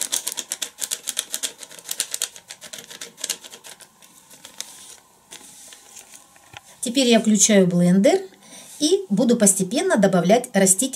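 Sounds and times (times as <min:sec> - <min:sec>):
pepper sachet crinkling and rattling: 0:00.0 - 0:06.2.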